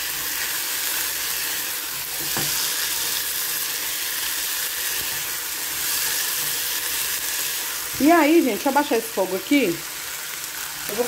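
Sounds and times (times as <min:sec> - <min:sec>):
spatula stirring food: 0:00.0 - 0:08.8
food sizzling in a saucepan: 0:00.0 - 0:11.0.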